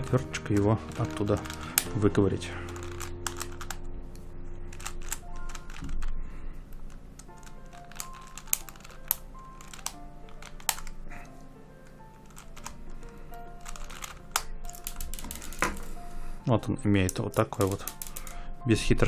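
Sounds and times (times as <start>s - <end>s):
screwdriver clicking on plastic puzzle: 0.0s - 2.0s, 2.6s - 3.8s, 4.7s - 6.0s, 6.7s - 11.0s, 11.8s - 16.0s, 17.0s - 18.4s
soft background music: 0.0s - 19.0s.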